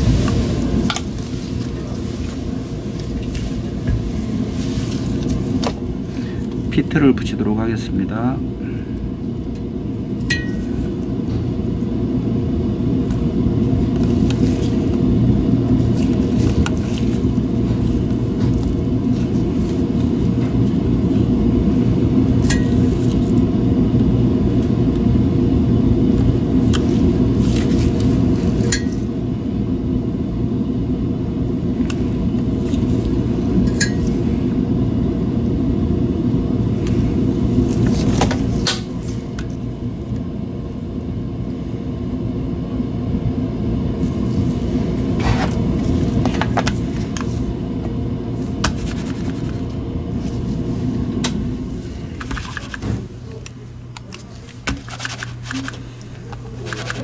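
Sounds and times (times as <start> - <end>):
machinery humming: 0.0 - 57.0.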